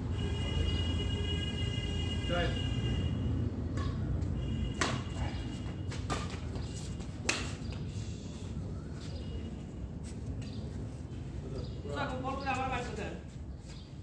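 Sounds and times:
racket striking shuttlecock: 0:04.7 - 0:05.1, 0:07.2 - 0:07.6.

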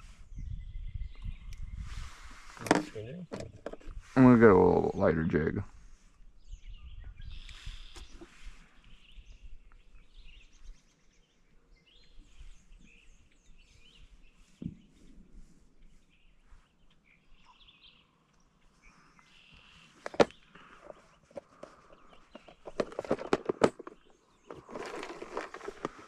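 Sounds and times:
faint bird chirps: 0:00.0 - 0:02.2, 0:06.4 - 0:22.7.

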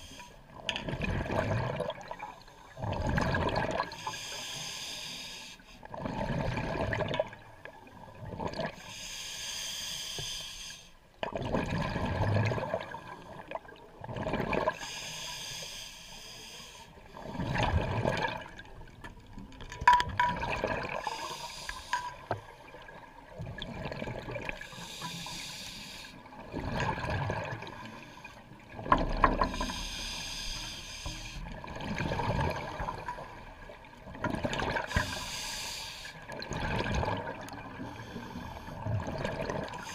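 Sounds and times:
regulator inhalation hiss: 0:04.0 - 0:05.8, 0:08.8 - 0:10.9, 0:14.8 - 0:16.9, 0:21.0 - 0:22.0, 0:24.7 - 0:26.2, 0:29.5 - 0:31.4, 0:34.9 - 0:36.2.

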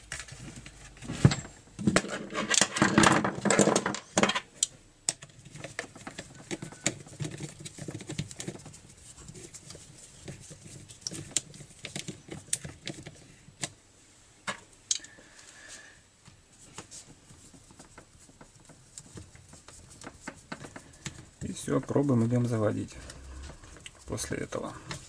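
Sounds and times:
plastic cover clattering: 0:00.0 - 0:04.5.

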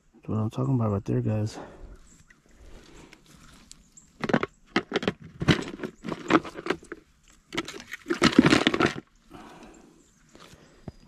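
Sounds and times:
rattling handling noise: 0:04.2 - 0:09.1.

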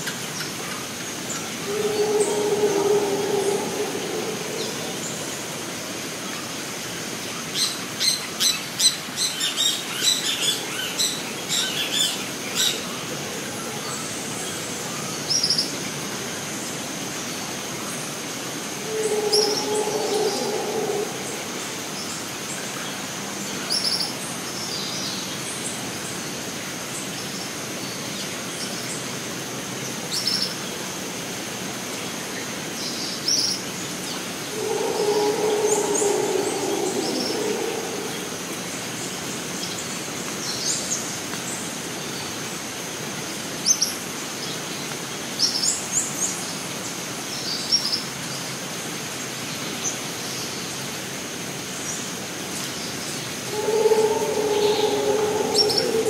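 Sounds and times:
high insect drone: 0:01.4 - 0:06.8, 0:18.2 - 0:22.6, 0:34.3 - 0:39.4, 0:53.3 - 0:56.0
low drawn-out animal call: 0:01.5 - 0:06.2, 0:18.6 - 0:22.3, 0:34.3 - 0:39.2, 0:53.3 - 0:56.0
bird chirps: 0:53.5 - 0:56.0.

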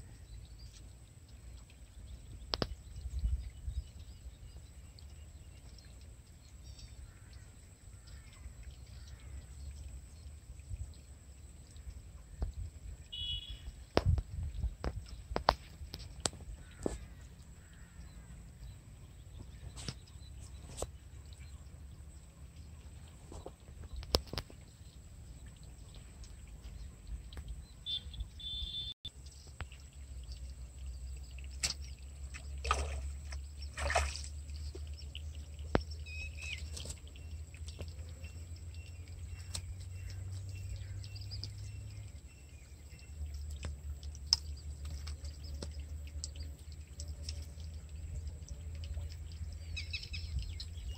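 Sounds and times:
bird chirping: 0:00.1 - 0:14.0, 0:16.5 - 0:32.6, 0:33.3 - 0:50.9
fish splashing in water: 0:12.4 - 0:18.0, 0:28.4 - 0:50.7.

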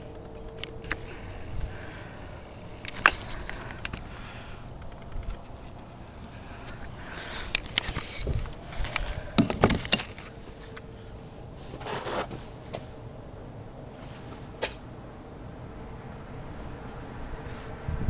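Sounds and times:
faint steady hum: 0:00.0 - 0:18.0
camera handling clicks and rustling: 0:00.2 - 0:01.5, 0:02.1 - 0:04.1, 0:04.8 - 0:10.9.

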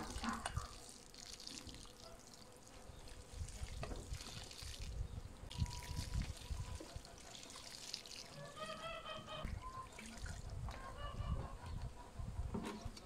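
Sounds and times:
water trickling onto soil: 0:00.0 - 0:08.9, 0:09.6 - 0:10.8.

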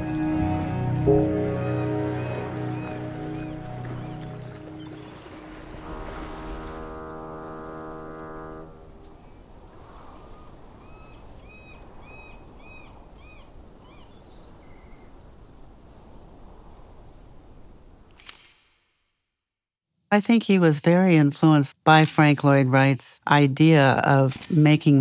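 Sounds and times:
bird calling: 0:00.0 - 0:07.2
sustained chord of tones: 0:00.0 - 0:09.4
outdoor ambience: 0:00.0 - 0:19.4.

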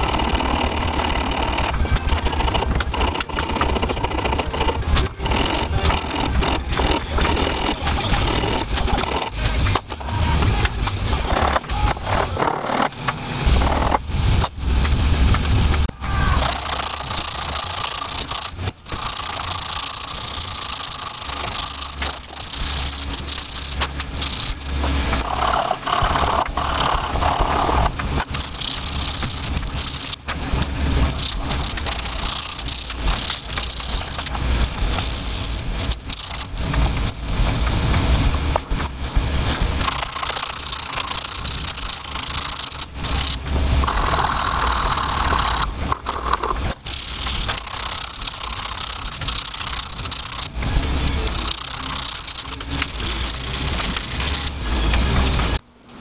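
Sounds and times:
low rumble: 0:13.2 - 0:16.5, 0:21.2 - 0:49.0.

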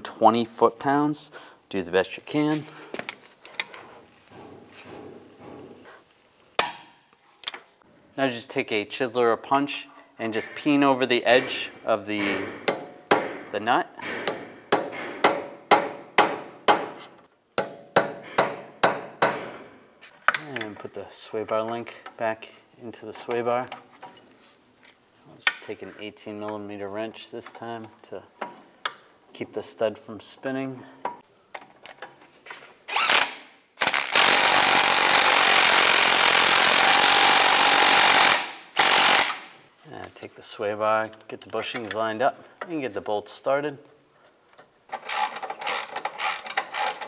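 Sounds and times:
hammer striking metal punch: 0:06.6 - 0:07.0, 0:12.2 - 0:19.7.

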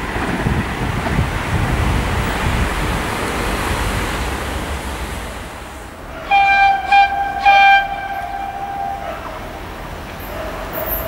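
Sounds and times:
passing train rushing: 0:00.0 - 0:11.0
train horn: 0:06.2 - 0:09.9.

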